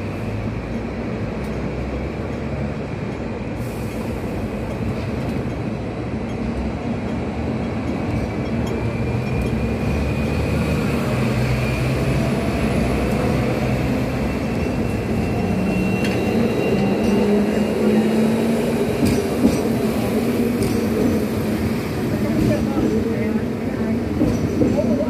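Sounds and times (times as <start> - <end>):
tram rumbling and rattling: 0.0 - 25.0
faint high squeal: 14.2 - 17.8.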